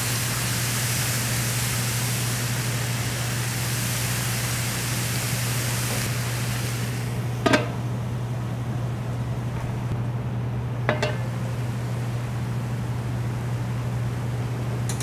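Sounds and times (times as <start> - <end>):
steady low hum: 6.0 - 15.0.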